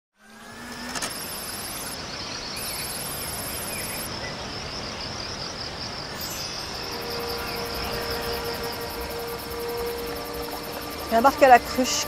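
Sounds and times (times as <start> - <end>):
crickets chirring: 0.2 - 12.0
background hiss: 1.1 - 12.0
steady low note: 6.4 - 12.0.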